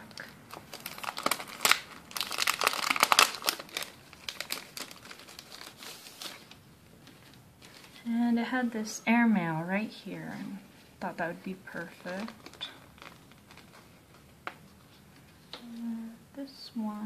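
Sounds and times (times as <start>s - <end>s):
sticker sheet crinkling: 0.0s - 8.1s, 11.5s - 15.0s.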